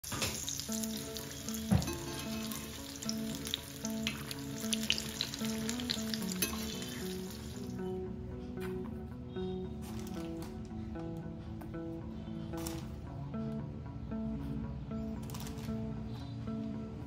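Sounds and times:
food deep-frying in oil: 0.0s - 7.8s
soft melody: 0.0s - 17.0s.

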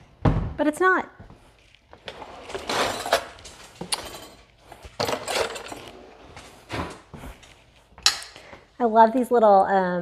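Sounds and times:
dishes and cutlery clinking: 2.7s - 6.0s.

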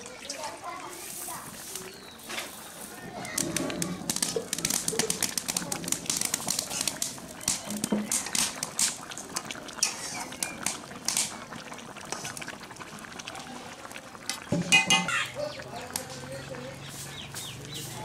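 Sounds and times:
curry boiling and bubbling: 0.0s - 18.0s
metal spatula stirring: 9.8s - 10.3s.

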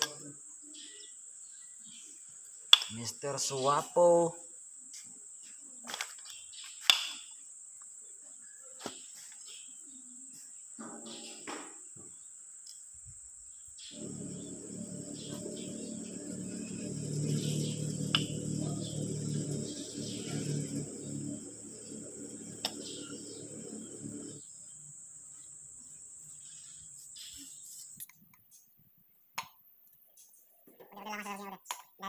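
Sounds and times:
insects shrilling: 12.2s - 28.7s
low rumbling hum: 13.9s - 25.0s.

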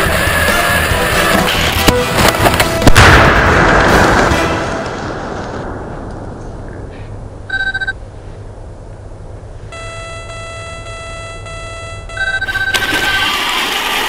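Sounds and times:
video game electronic beeps: 7.5s - 8.0s, 9.7s - 13.2s
pulsing buzzing tone: 9.7s - 13.9s
toy tank motor rumble: 12.2s - 14.0s.

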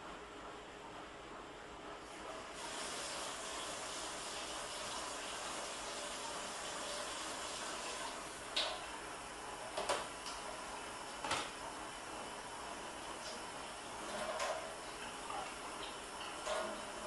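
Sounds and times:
room noise hiss: 0.0s - 17.0s
kitchen knocks and clatters: 11.2s - 11.5s, 14.1s - 14.7s.

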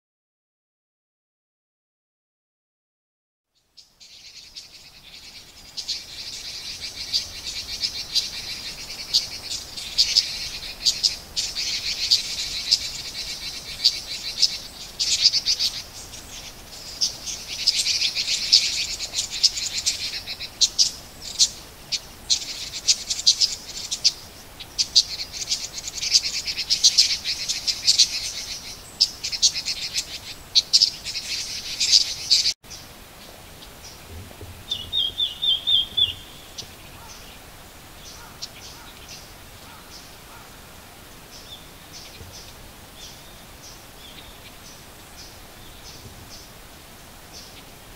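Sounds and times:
bird repeated clear notes: 34.0s - 37.3s
bird chattering calls: 34.6s - 37.4s.

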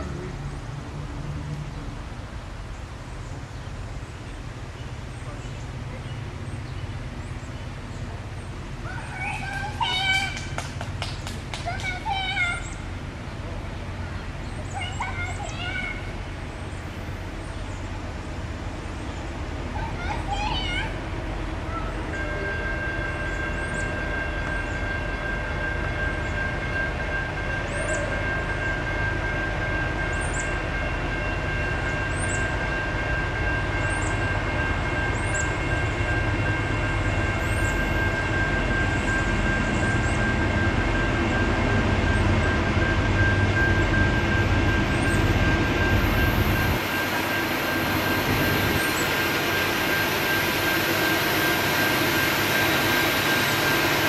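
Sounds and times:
freight train rumble: 0.0s - 54.0s
high whine: 22.2s - 54.0s.

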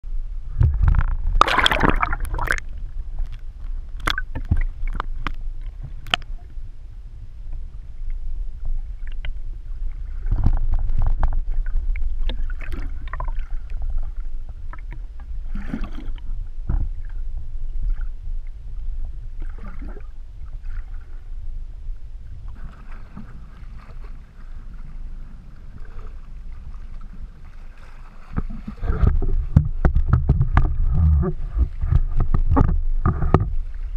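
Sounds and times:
muffled water sloshing underwater: 0.0s - 33.9s
knocks and clicks: 29.0s - 33.6s.

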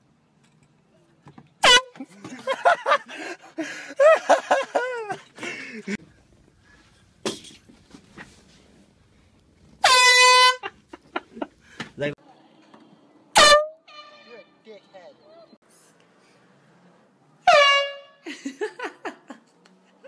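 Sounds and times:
air horn blasts: 1.6s - 2.0s, 9.8s - 10.7s, 13.3s - 14.6s, 17.4s - 18.2s.

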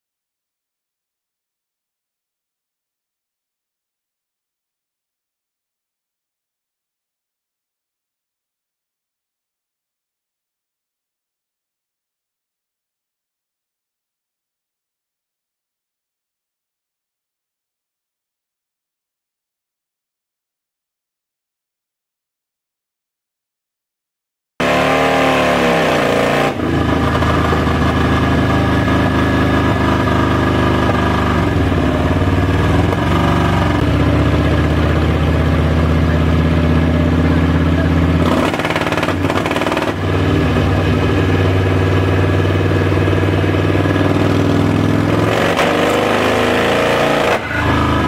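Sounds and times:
motorcycle engine revving: 24.6s - 48.0s.

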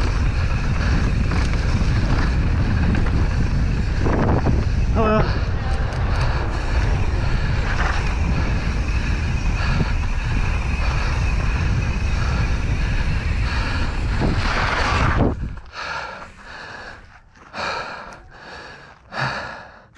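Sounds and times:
wind on microphone: 0.0s - 15.8s
bike tyres rolling on dirt: 0.0s - 19.7s
heavy breathing: 0.2s - 14.5s, 15.6s - 19.9s.

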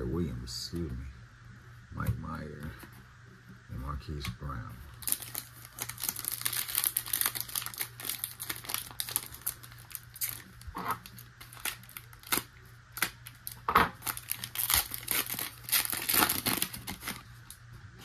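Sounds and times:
foil wrapper tearing and crinkling: 4.9s - 17.6s.

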